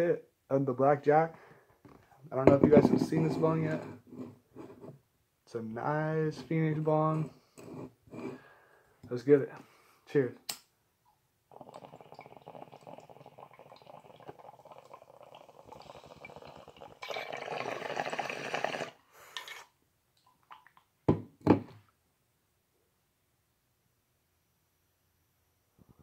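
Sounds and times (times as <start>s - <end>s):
water bubbling in a bong: 11.5s - 19.5s.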